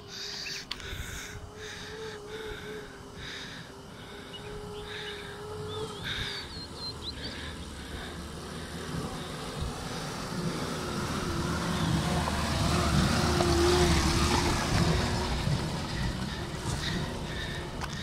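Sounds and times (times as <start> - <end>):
jeep engine running: 3.8 - 18.0
tyres rolling over stones: 10.1 - 18.0.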